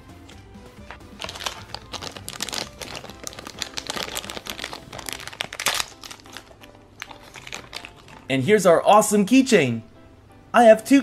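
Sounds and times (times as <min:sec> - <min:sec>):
plastic bag crinkling: 0:01.1 - 0:08.3.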